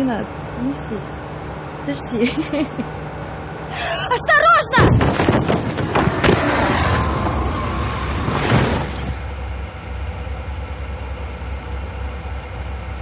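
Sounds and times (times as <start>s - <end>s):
loud rushing noise: 5.4s - 9.3s.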